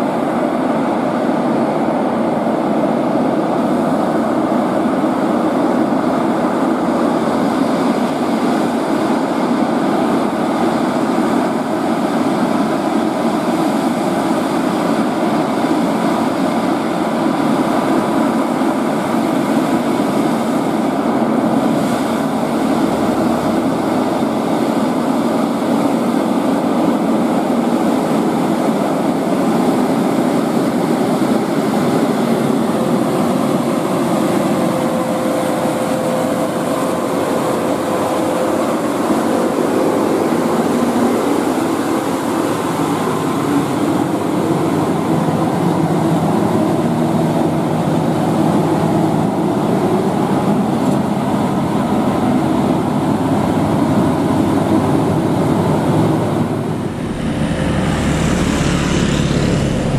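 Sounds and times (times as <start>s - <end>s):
truck diesel engine under load: 19.7s - 59.9s
road noise: 20.8s - 27.1s, 55.4s - 59.9s
faint steady whine: 56.2s - 59.9s.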